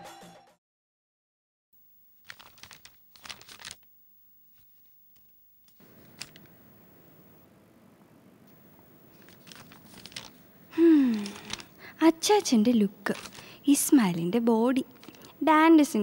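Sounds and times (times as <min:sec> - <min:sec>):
crinkling and rustling: 0:02.1 - 0:07.4, 0:09.1 - 0:15.4.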